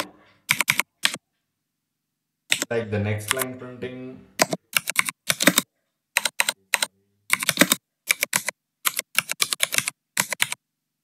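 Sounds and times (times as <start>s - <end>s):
typing on computer keyboard: 0.0s - 1.2s, 4.4s - 10.6s.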